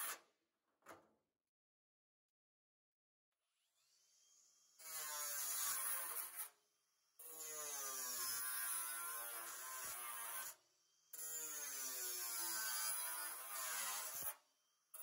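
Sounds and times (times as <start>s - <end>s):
power tool cutting metal sheet: 4.8s - 6.6s, 7.2s - 10.6s, 11.2s - 14.4s.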